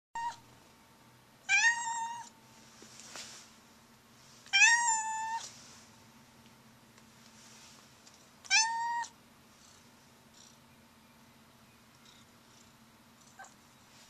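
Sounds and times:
cat meowing: 0.2 - 0.4, 1.5 - 2.3, 4.5 - 5.5, 8.5 - 9.1.

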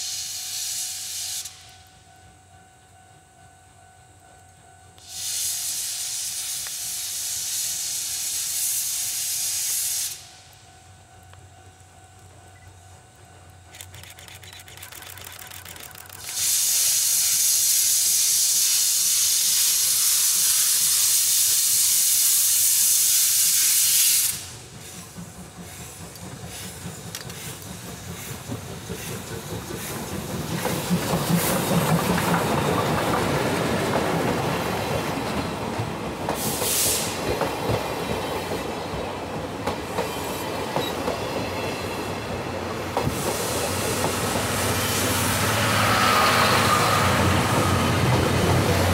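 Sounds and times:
steam hissing: 0.0 - 1.8, 5.0 - 10.6, 13.8 - 48.9
steam locomotive rumble: 0.0 - 48.9
wheels clicking on rail joints: 11.2 - 17.4, 24.3 - 44.6.

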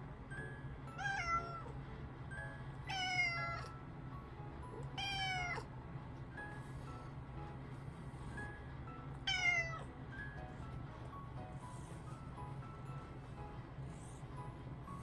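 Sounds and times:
soft background music: 0.0 - 15.0
cat meowing: 1.0 - 1.7, 2.9 - 3.7, 5.0 - 5.7, 9.3 - 9.8.

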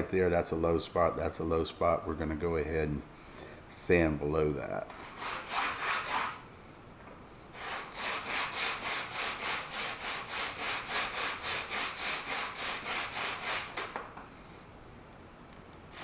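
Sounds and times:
plastic sheet rasping on sandpaper: 5.0 - 6.4, 7.6 - 13.9.

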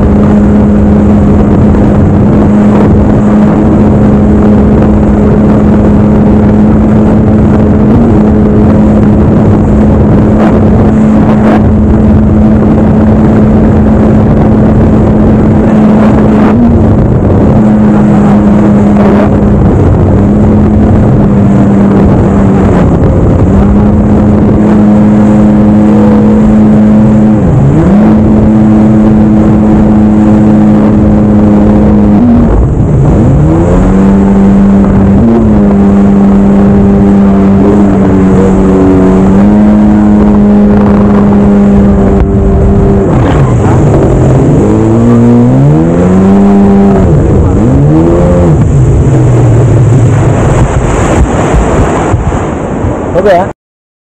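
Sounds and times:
jet ski engine: 0.0 - 53.5
rush of wind and spray: 0.0 - 53.5.

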